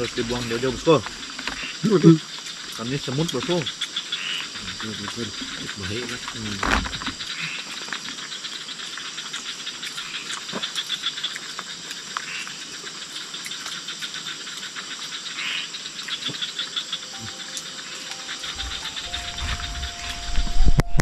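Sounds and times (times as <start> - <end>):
insects trilling: 0.0 - 21.0.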